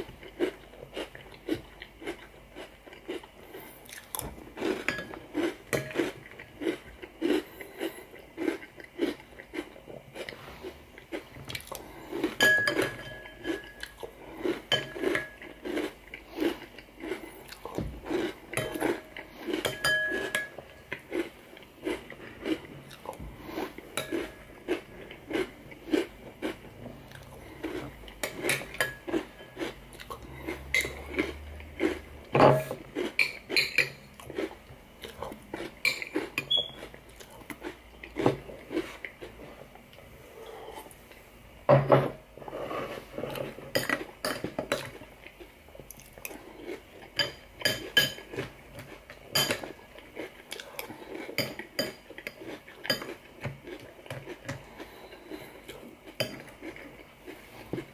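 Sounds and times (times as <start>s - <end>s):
chewing and crunching cereal: 0.0s - 41.2s, 42.4s - 57.9s
metal spoon clinking on bowl: 12.4s - 13.8s, 19.6s - 20.6s.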